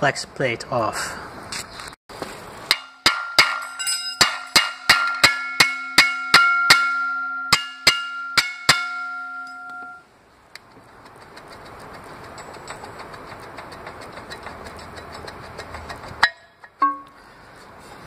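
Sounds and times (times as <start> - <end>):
hammer striking metal plate: 2.7 - 10.0, 16.2 - 17.2.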